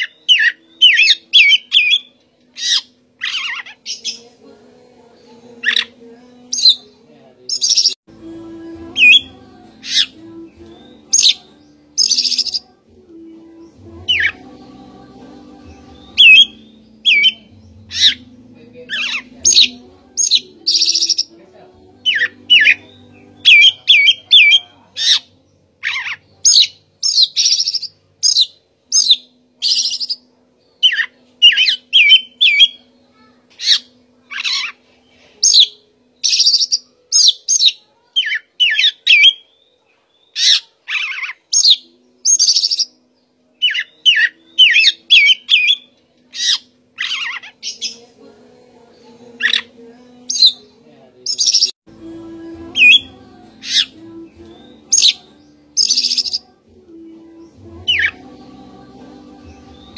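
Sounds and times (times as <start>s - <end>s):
bird singing whistled phrases: 16.2s - 18.2s, 35.4s - 42.9s, 43.6s - 47.4s, 55.8s - 56.4s.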